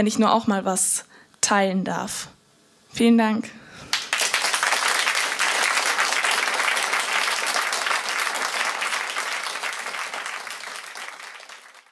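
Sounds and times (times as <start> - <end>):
audience applauding: 3.9 - 11.9.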